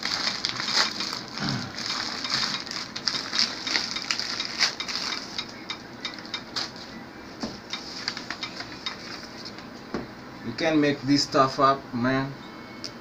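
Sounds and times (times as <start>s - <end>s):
plastic wrapping crinkling: 0.0s - 6.9s, 7.8s - 9.6s.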